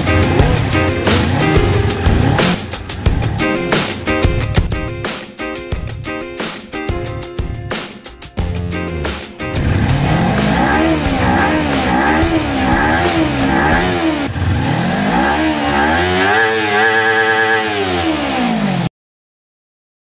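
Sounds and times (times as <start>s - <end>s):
motorcycle engine revving: 0.0s - 4.9s, 9.5s - 18.9s.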